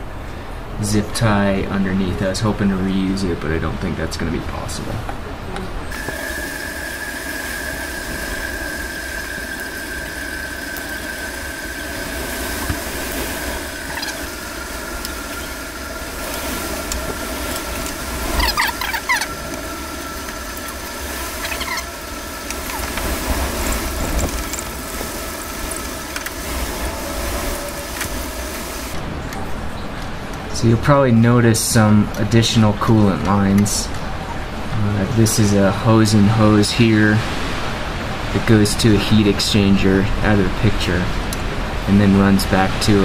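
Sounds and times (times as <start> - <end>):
steady high whine: 0.0 - 36.9
rubber hoses squeaking: 5.9 - 29.0.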